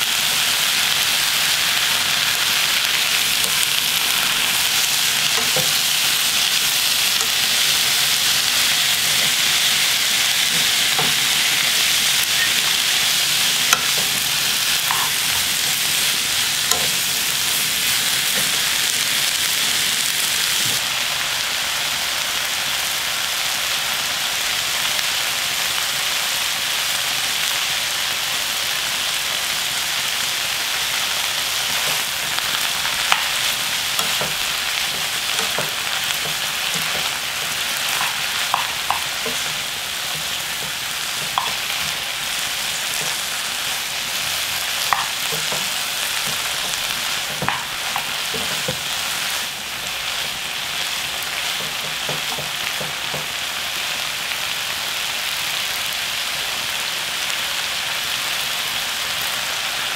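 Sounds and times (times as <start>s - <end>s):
vegetables sizzling in frying pan: 0.0s - 59.9s
spatula tapping against pan: 5.4s - 5.8s, 34.0s - 37.2s, 37.9s - 39.6s, 40.2s - 42.0s, 44.9s - 45.7s, 46.3s - 48.8s, 51.6s - 53.3s.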